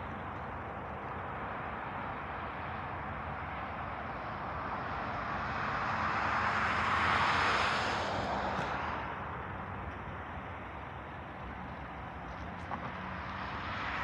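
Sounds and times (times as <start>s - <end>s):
passing vehicle rushing noise: 3.4s - 9.8s.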